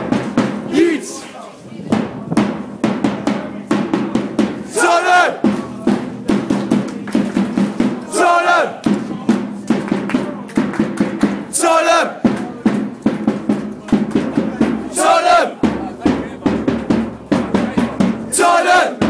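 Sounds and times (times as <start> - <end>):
crowd chanting: 0.6 - 1.7, 4.4 - 6.4, 7.7 - 9.4, 11.4 - 12.8, 13.8 - 16.6, 17.4 - 19.0
crowd sung shout: 0.7 - 1.4, 4.6 - 5.5, 8.0 - 8.9, 11.5 - 12.2, 14.6 - 15.7, 18.3 - 19.0
hand drum beaten quickly: 1.9 - 4.7, 12.2 - 19.0.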